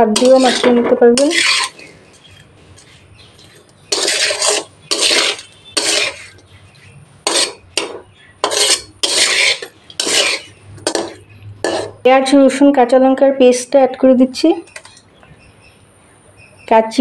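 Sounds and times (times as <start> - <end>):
spatula scraping metal pan: 0.0 - 12.0, 14.7 - 15.0.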